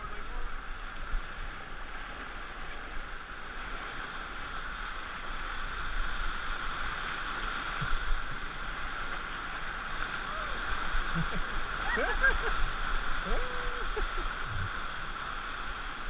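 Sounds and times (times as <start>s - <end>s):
whitewater rushing and splashing: 0.0s - 16.0s.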